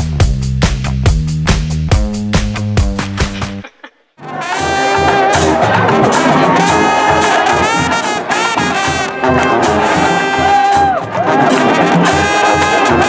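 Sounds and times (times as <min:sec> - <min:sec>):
low drum beat: 0:00.0 - 0:03.8
trumpets and trombones playing: 0:04.2 - 0:13.0.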